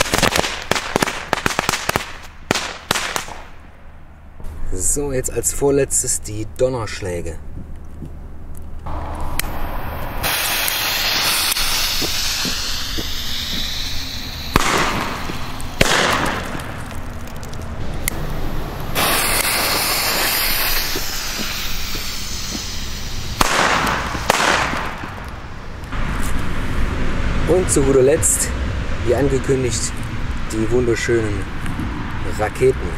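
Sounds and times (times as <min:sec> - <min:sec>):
firecracker fuse hissing: 0:00.0 - 0:03.5, 0:08.9 - 0:26.7
firecracker bangs echoing: 0:00.0 - 0:03.7, 0:08.9 - 0:17.3, 0:18.0 - 0:25.5.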